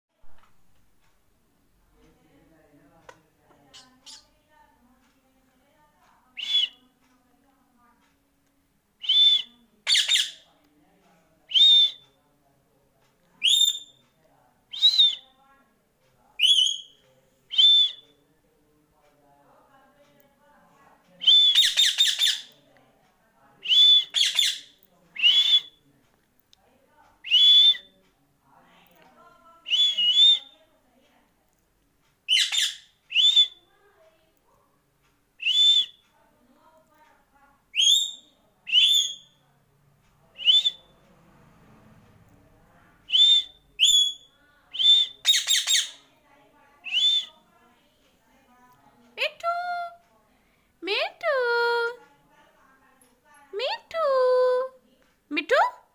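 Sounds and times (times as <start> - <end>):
parakeet whistling: 6.4 - 6.8, 9.0 - 10.4, 13.4 - 14.0, 14.7 - 15.2, 16.4 - 18.0, 21.2 - 22.5, 23.6 - 25.8, 27.2 - 27.9, 29.6 - 30.6, 32.3 - 33.6, 35.4 - 36.0, 37.7 - 39.4, 40.4 - 40.9, 43.1 - 46.0, 46.8 - 47.4.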